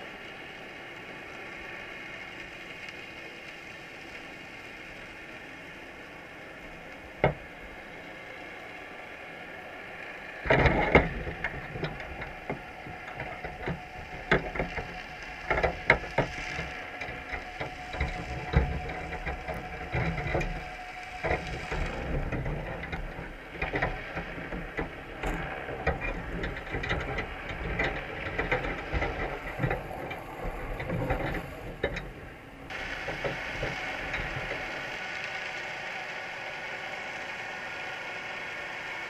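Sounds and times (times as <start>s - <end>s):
underwater hiss and rumble: 0.0s - 39.0s
crabs clicking and scraping in trap: 10.4s - 35.0s.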